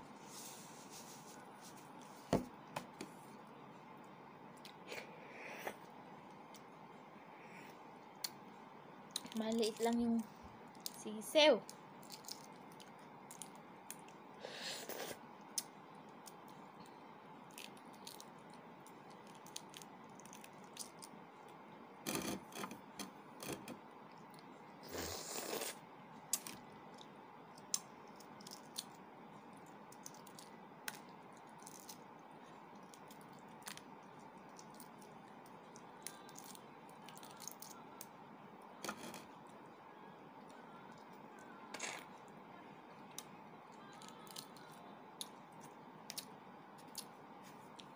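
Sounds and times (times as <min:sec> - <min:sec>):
room hum: 0:00.0 - 0:47.9
egg shell cracking and peeling: 0:11.6 - 0:14.2, 0:17.5 - 0:21.6, 0:26.3 - 0:29.0, 0:29.8 - 0:32.1, 0:32.7 - 0:38.1.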